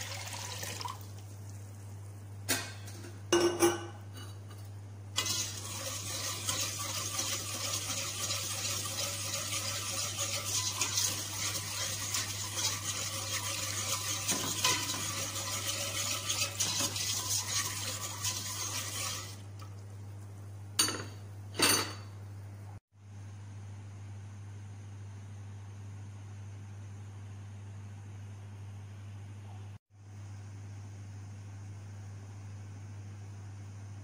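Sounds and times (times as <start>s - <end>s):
metal spoon scraping pot: 5.2s - 19.4s.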